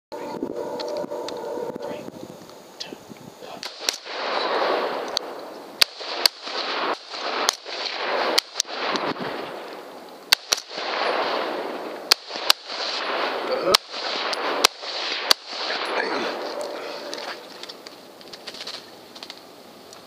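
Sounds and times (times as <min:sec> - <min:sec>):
rifle shots: 0:03.6 - 0:17.8.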